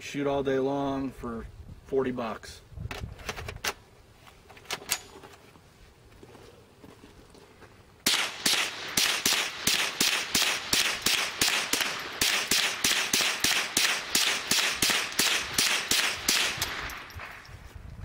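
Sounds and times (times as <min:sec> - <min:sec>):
rapid rifle shots: 0:08.1 - 0:17.4.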